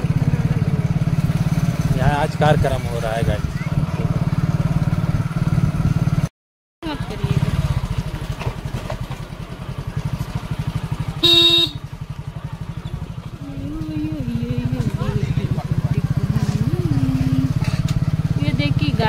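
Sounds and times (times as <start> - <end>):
motorcycle engine puttering: 0.0 - 19.0
short horn beep: 11.2 - 11.8.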